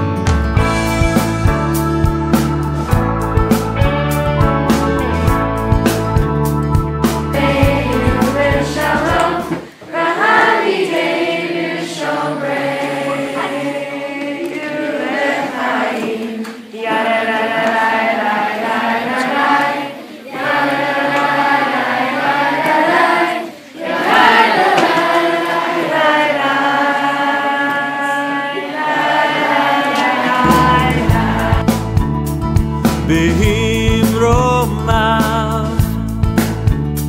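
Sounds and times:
young voices singing unaccompanied: 7.3s - 32.1s.

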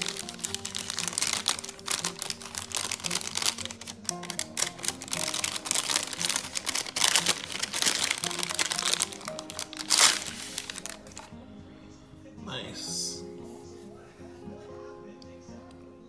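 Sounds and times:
plastic wrapping crinkling: 0.0s - 11.3s
background music: 0.0s - 16.0s.

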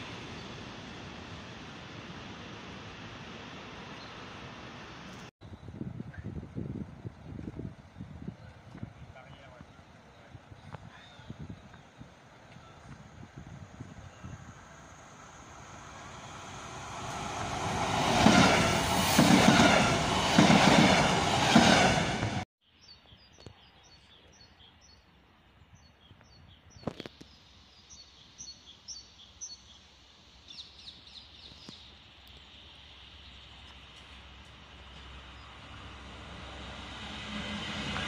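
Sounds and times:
small birds chirping: 30.5s - 32.6s.

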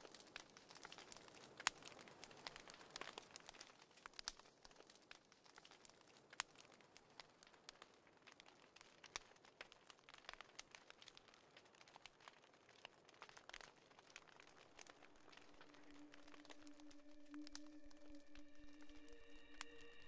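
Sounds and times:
faint crackles and clicks: 0.0s - 20.0s
soft hiss: 14.4s - 20.0s.

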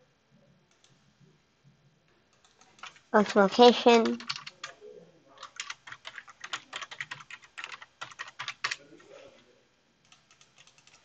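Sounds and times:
keyboard keystroke clicks: 10.0s - 11.0s.

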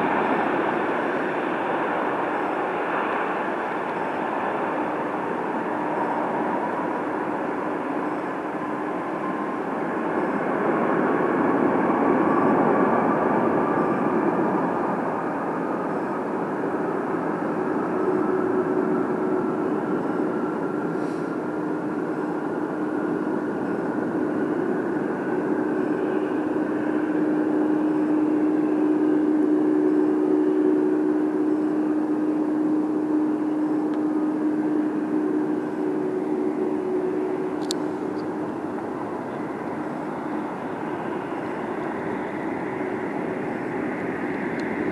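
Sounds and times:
jet engines roaring: 0.0s - 44.9s
low hum: 15.4s - 44.9s.

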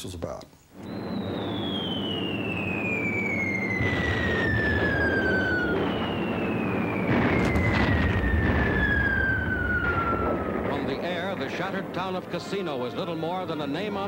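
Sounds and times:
falling bomb whistle: 0.8s - 10.9s
low rumble: 0.8s - 13.9s
explosion blast: 0.8s - 14.0s.

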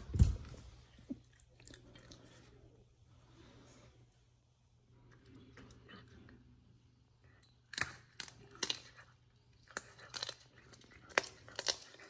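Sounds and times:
animal crunching and tearing meat: 7.7s - 12.0s.

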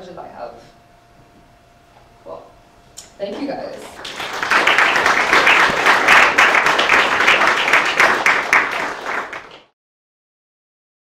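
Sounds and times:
audience applauding: 3.8s - 9.7s.

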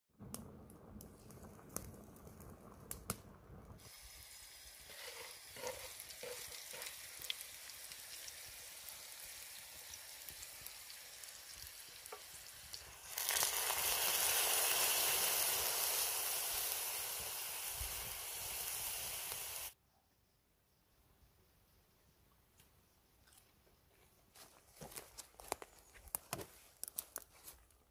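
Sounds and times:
food sizzling in a skillet: 3.8s - 19.8s.

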